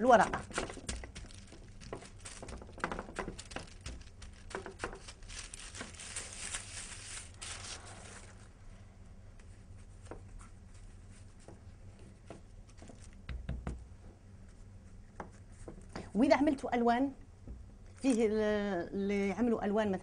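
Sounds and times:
baking paper crinkling: 0:00.1 - 0:08.7.

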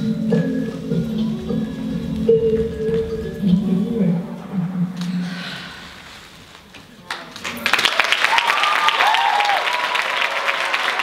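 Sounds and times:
audience applause: 0:07.0 - 0:11.0
cheering and whoops: 0:07.9 - 0:11.0.

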